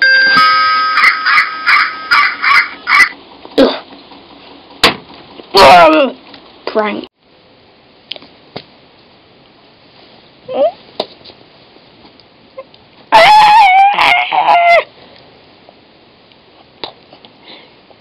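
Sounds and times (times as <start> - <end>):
high-pitched squawk: 0.9 - 3.2.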